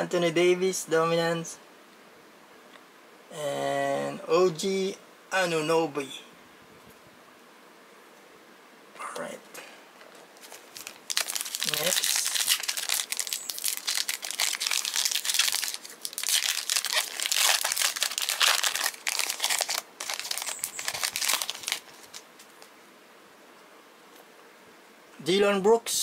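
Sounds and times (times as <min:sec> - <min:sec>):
wrapper tearing and crinkling: 0:10.4 - 0:22.5.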